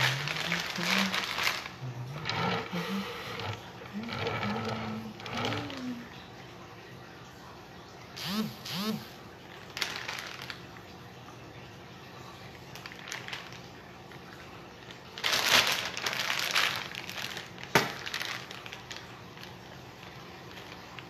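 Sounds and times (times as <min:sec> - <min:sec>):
rustling and crinkling: 0:00.0 - 0:06.2, 0:09.5 - 0:10.9, 0:12.7 - 0:21.0
faint steady hum: 0:00.0 - 0:21.0.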